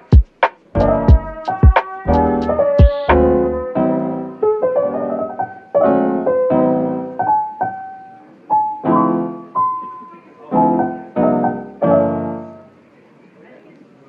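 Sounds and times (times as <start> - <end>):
piano music: 0.0 - 12.8.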